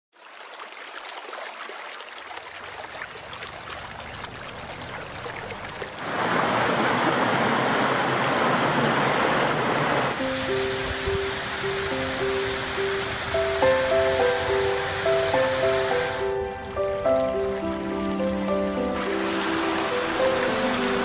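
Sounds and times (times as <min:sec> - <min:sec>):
creek trickling over rocks: 0:00.1 - 0:06.3, 0:10.1 - 0:21.0
music: 0:10.2 - 0:21.0.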